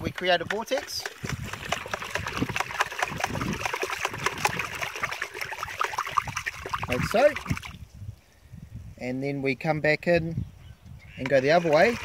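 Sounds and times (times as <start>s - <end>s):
liquid swirling and splashing: 0.0s - 7.8s, 11.3s - 12.0s
stick stirring liquid in bucket: 0.0s - 7.8s, 11.2s - 12.0s.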